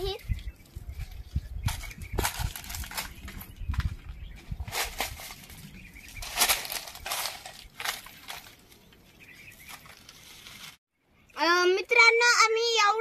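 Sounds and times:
dry leaves crunching underfoot: 0:04.6 - 0:10.8.

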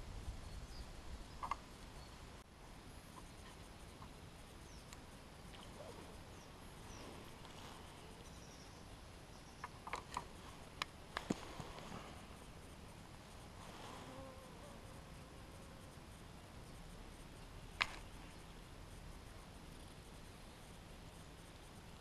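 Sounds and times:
small sharp clicks and taps: 0:01.4 - 0:01.6.

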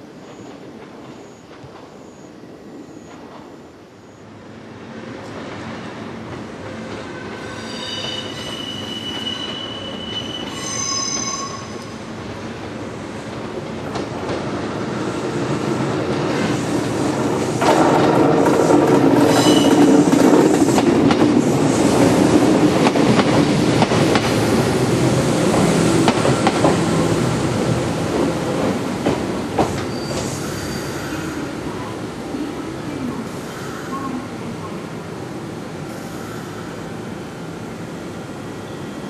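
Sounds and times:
train passing: 0:00.0 - 0:39.0
high-pitched wheel squeal: 0:07.2 - 0:12.0, 0:29.9 - 0:31.2.

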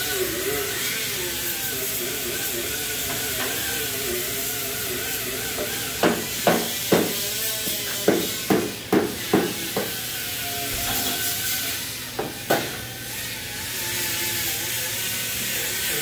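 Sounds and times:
hammer striking sheet steel: 0:05.6 - 0:07.2, 0:07.9 - 0:10.0.

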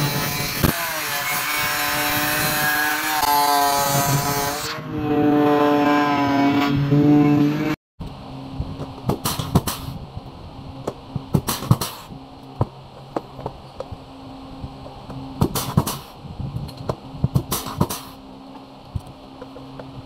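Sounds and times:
steady low hum: 0:06.7 - 0:20.0.

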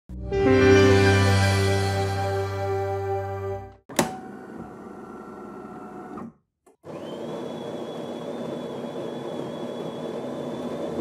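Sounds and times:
intro music: 0:00.1 - 0:03.8.

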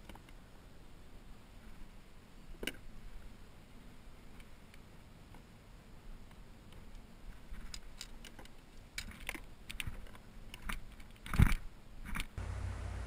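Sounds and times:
fishing gear clicking on plastic: 0:06.7 - 0:12.4.

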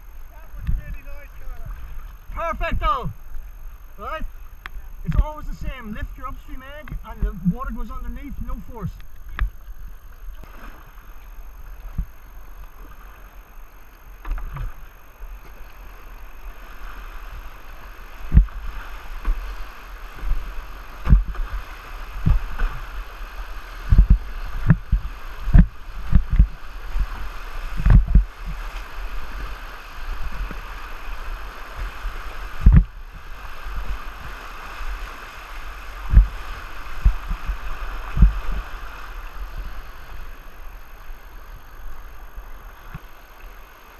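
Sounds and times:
paddle splashes and thumps: 0:18.2 - 0:35.2, 0:35.8 - 0:39.7.

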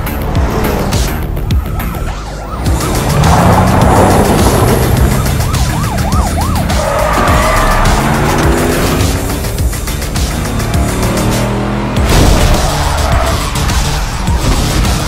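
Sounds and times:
engines running hard: 0:00.0 - 0:15.0
police siren yelping and wailing: 0:01.5 - 0:08.7.

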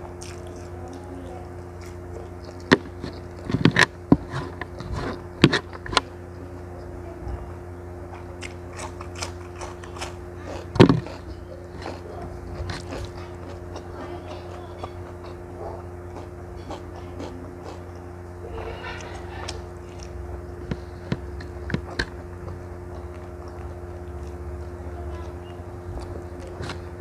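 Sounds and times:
crunching cucumber bites: 0:00.0 - 0:01.0, 0:08.1 - 0:18.0, 0:18.6 - 0:24.8
chewing: 0:00.0 - 0:07.0, 0:08.1 - 0:27.0
steady low hum: 0:00.0 - 0:27.0.

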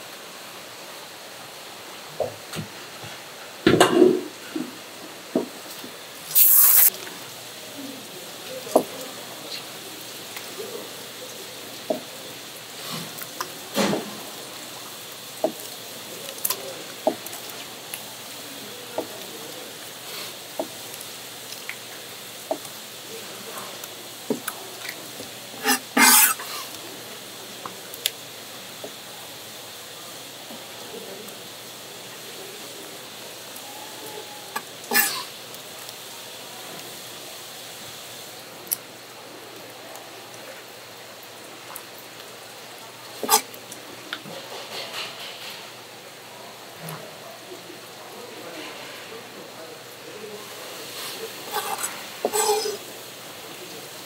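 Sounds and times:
dripping water: 0:03.7 - 0:27.0
brief hiss: 0:06.2 - 0:06.9.

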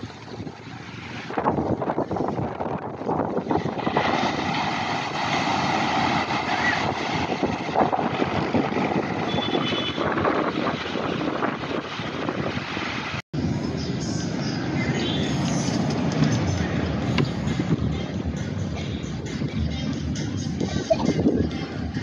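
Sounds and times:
wind gusting on microphone: 0:00.0 - 0:19.6
surf breaking on beach: 0:01.0 - 0:09.6.

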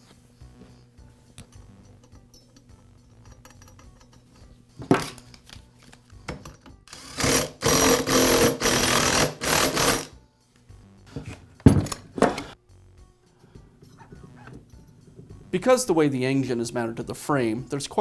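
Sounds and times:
impact driver bursts: 0:06.9 - 0:10.1.

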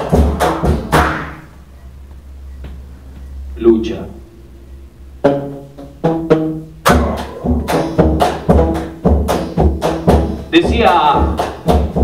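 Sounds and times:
drums and percussion playing: 0:00.0 - 0:01.5, 0:05.2 - 0:12.0
deep bass beats: 0:00.0 - 0:12.0
ringing drum strokes: 0:06.9 - 0:11.4.

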